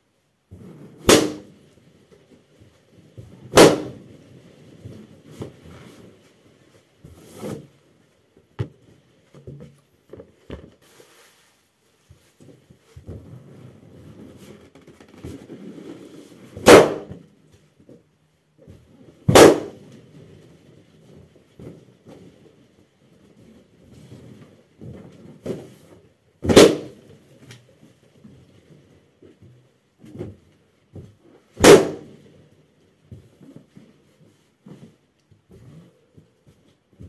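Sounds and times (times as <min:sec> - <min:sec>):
balloons popping: 0:00.6 - 0:01.6, 0:03.4 - 0:04.2, 0:14.4 - 0:17.2, 0:19.3 - 0:19.9, 0:26.4 - 0:27.1, 0:31.6 - 0:32.2
rubbing and shuffling: 0:04.1 - 0:16.6.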